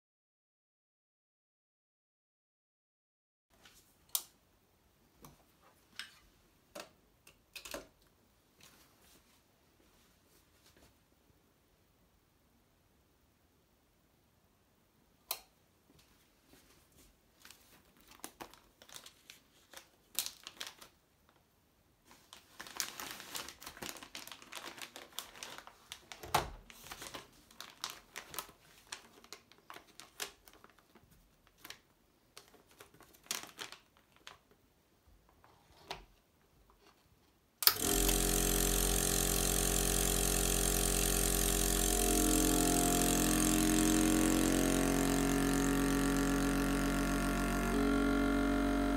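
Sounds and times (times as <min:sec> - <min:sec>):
plastic bag crinkling: 0:17.4 - 0:21.0, 0:22.1 - 0:34.6
vacuum sealer pump running: 0:37.6 - 0:48.9.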